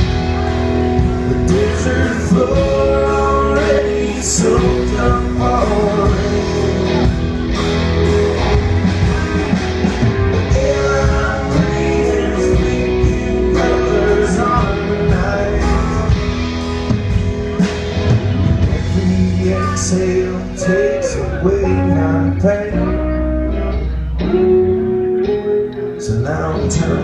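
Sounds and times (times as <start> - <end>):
drums: 0.0 - 27.0
electric guitar: 0.0 - 27.0.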